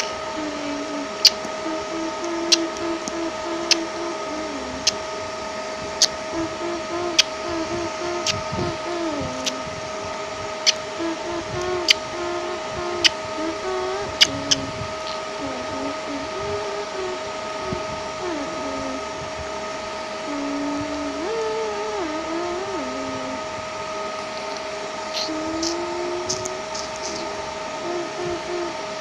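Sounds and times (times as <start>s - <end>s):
mechanical hum with whining tones: 0.0s - 29.0s
low tone stepping in pitch: 6.0s - 10.2s, 10.8s - 19.3s, 20.2s - 23.6s, 24.2s - 28.9s.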